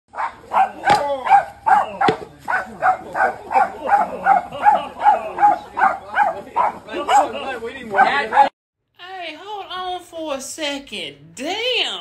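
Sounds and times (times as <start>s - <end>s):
dog barking rapidly: 0.1s - 8.5s.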